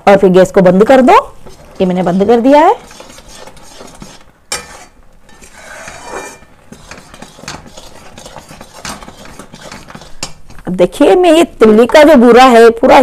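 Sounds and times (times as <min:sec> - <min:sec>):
metal spoon scraping and clinking pan: 0:01.5 - 0:10.4.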